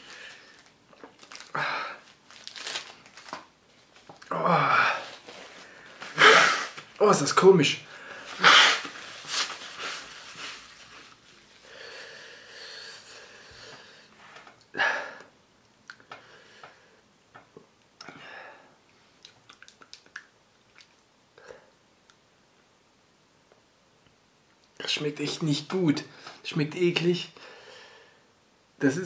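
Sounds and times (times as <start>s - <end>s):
man sniffling: 6.0s - 6.8s, 8.2s - 8.9s
mouth clicks and smacks: 15.6s - 16.1s, 19.2s - 21.1s.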